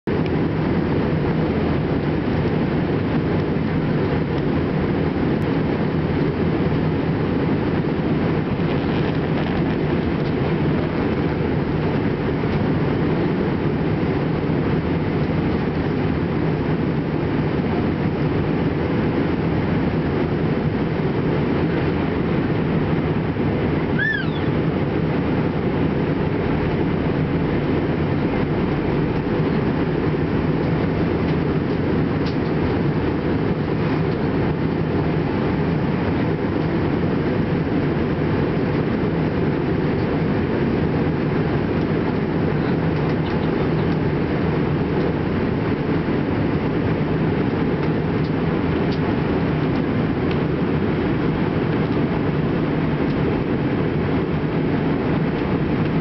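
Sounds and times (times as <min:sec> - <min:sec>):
airliner cabin rumble: 0:00.0 - 0:56.0
brief high chirp: 0:24.0 - 0:24.6.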